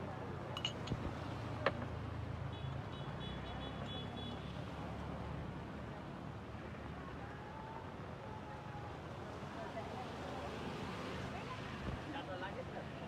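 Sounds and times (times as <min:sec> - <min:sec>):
traffic rumble on wet road: 0:00.0 - 0:13.0.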